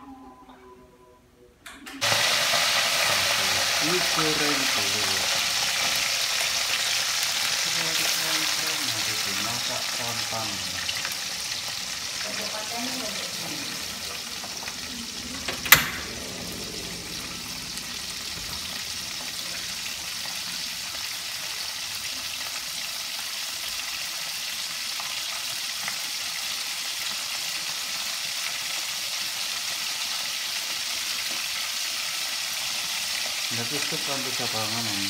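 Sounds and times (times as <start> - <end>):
fish frying in oil: 2.0 - 15.4, 16.1 - 35.0.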